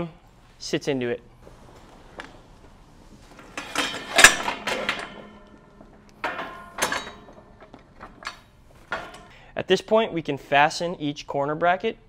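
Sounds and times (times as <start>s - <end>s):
steel tube frame clattering: 1.5s - 10.0s.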